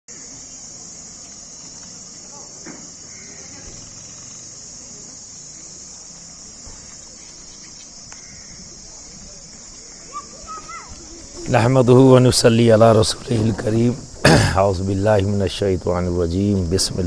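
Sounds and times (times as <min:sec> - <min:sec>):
faint crowd murmur: 0:00.1 - 0:17.0
insect chorus buzzing: 0:00.1 - 0:17.0.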